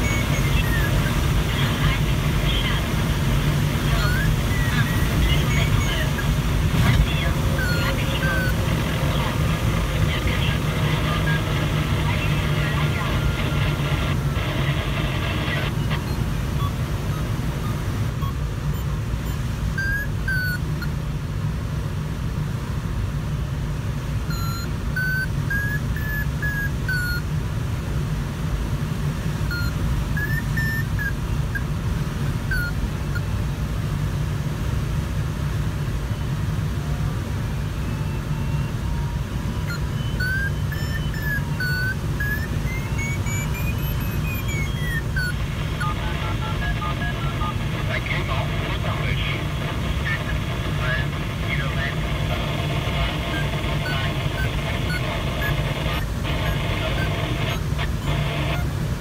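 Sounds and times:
variometer beeping: 0:00.0 - 0:21.0, 0:24.2 - 0:27.4, 0:29.0 - 0:33.6, 0:36.1 - 0:59.0.

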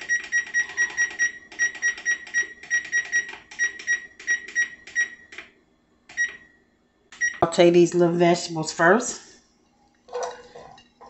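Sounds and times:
oven control panel beeping: 0:00.0 - 0:05.4.

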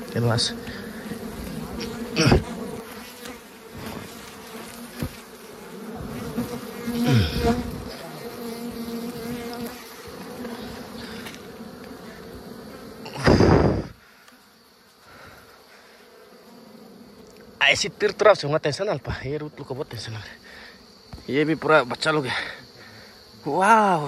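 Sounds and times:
single bee buzzing past: 0:00.0 - 0:18.4
bees buzzing in a swarm: 0:00.0 - 0:24.0.

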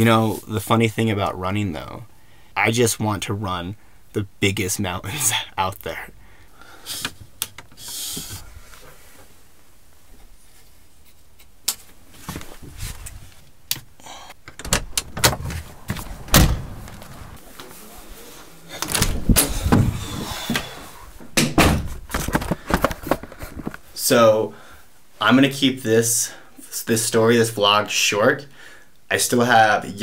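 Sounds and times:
knocks and thumps of handled objects: 0:21.4 - 0:23.8.

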